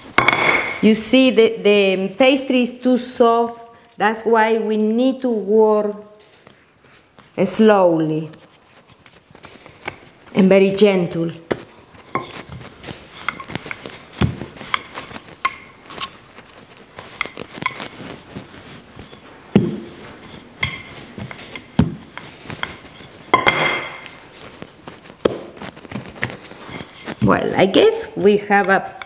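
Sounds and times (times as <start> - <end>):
knocks and thumps on benchtop: 0.1 - 0.8, 20.6 - 24.2
rolling pin rolling dough: 6.2 - 29.0.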